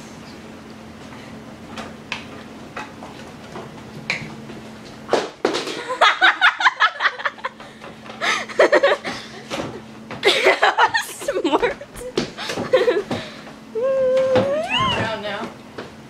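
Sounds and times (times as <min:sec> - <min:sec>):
excited voices laughing and squealing: 0:13.8 - 0:15.1.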